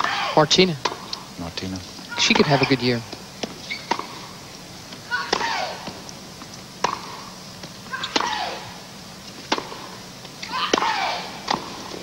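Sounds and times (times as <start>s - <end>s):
ball bouncing: 2.3s - 4.2s, 6.8s - 8.4s, 9.4s - 9.8s
racket hitting ball: 2.3s - 4.2s, 5.2s - 6.0s, 6.8s - 7.2s, 8.0s - 8.6s, 9.4s - 9.8s, 10.7s - 12.0s.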